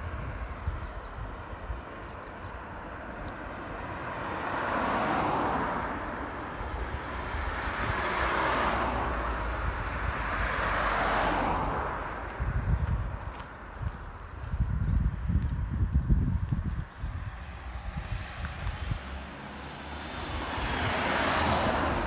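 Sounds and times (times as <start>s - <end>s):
vehicles passing: 0.0s - 22.0s.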